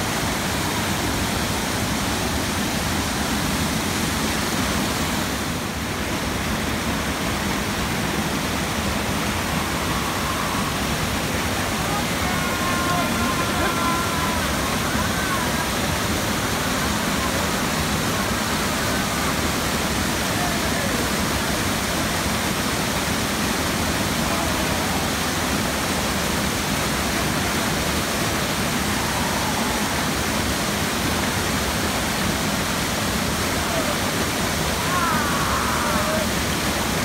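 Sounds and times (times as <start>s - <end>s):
waterfall rushing over rocks: 0.0s - 37.0s.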